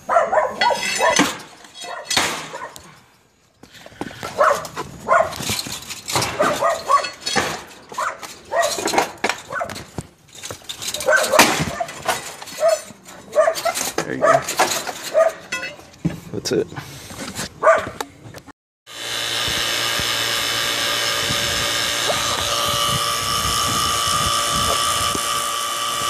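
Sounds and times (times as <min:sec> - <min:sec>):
dog barking: 0:00.0 - 0:01.3, 0:01.9 - 0:02.8, 0:04.3 - 0:05.4, 0:06.4 - 0:07.2, 0:08.0 - 0:08.8, 0:09.5 - 0:09.8, 0:11.0 - 0:12.0, 0:12.6 - 0:14.5, 0:15.1 - 0:15.5, 0:17.6 - 0:18.0
sharp knocks and scrapes: 0:00.6 - 0:02.9, 0:03.6 - 0:16.3.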